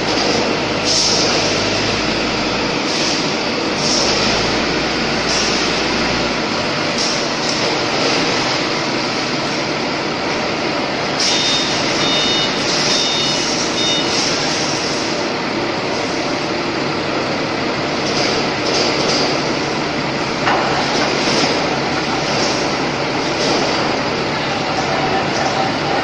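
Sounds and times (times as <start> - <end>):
forklift running: 0.0 - 26.0
high beeps: 11.3 - 14.2.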